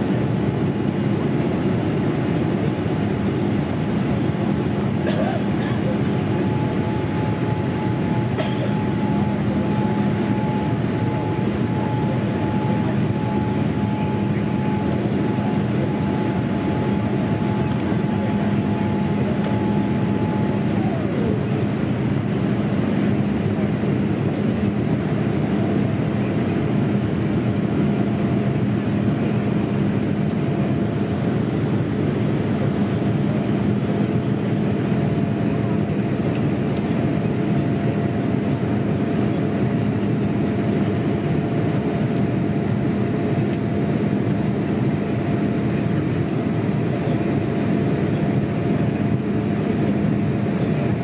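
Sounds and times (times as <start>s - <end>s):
engine and airflow rush: 0.0s - 51.0s
thin whine: 4.7s - 21.8s.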